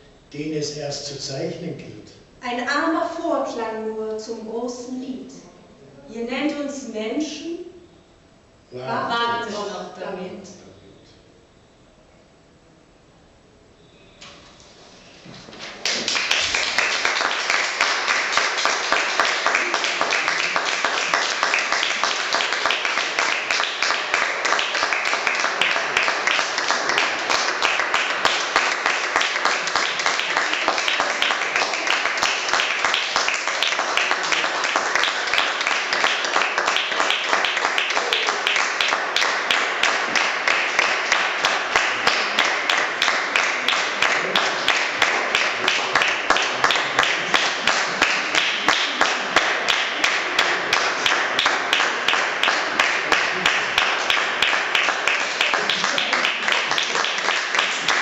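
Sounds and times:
audience applauding: 0:15.6 - 0:58.0.

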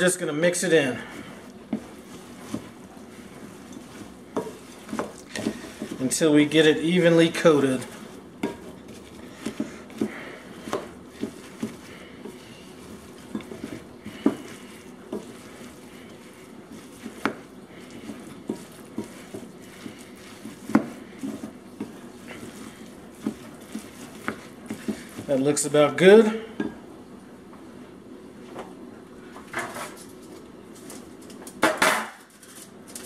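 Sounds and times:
spoon scraping oats in bowl: 0:00.4 - 0:26.4.

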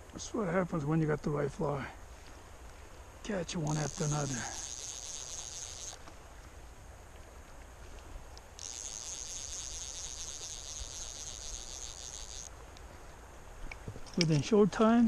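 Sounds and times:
insect trilling: 0:03.2 - 0:06.1, 0:08.4 - 0:12.6.

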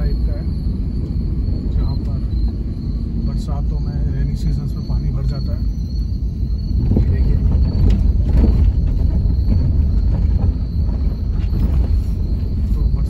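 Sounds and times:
low rumble of car tyres: 0:00.0 - 0:13.0
suspension knocks: 0:06.7 - 0:12.9.

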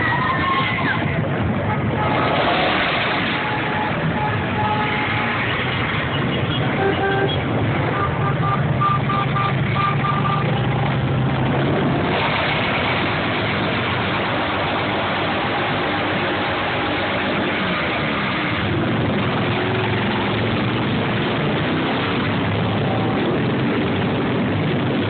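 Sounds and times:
motorcycle engines droning: 0:00.0 - 0:25.0.

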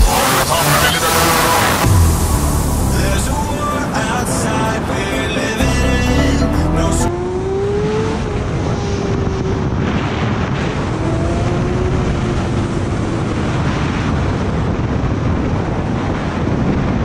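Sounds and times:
wind rush on microphone: 0:07.1 - 0:17.0.

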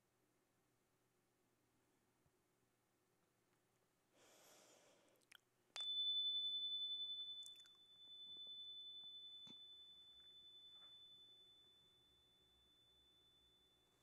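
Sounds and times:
metal chime bar ringing: 0:05.8 - 0:14.0.

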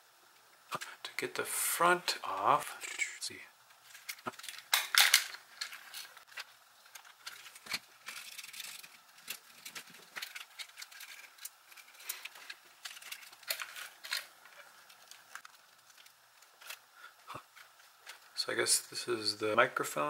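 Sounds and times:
plastic parts clicking and scraping: 0:03.8 - 0:16.9.

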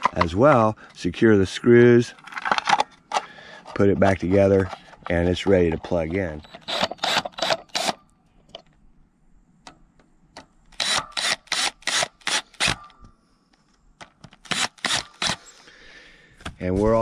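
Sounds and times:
cordless drill driving screws: 0:06.4 - 0:08.0, 0:10.8 - 0:12.8, 0:14.4 - 0:15.5.

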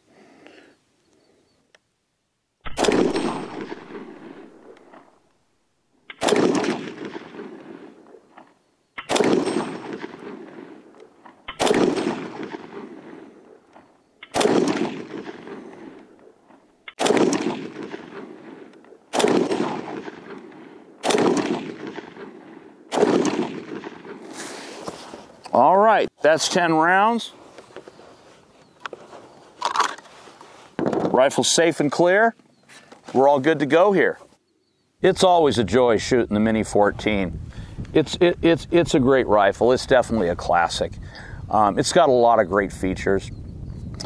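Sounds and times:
rifle shots: 0:02.6 - 0:05.1, 0:06.1 - 0:24.4.

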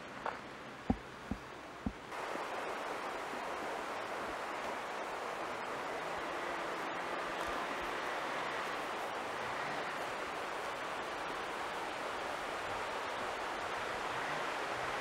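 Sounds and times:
stream rushing over rocks: 0:00.0 - 0:15.0.

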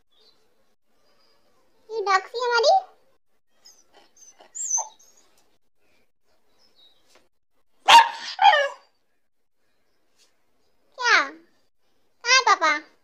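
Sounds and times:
dog barking: 0:07.8 - 0:08.9.

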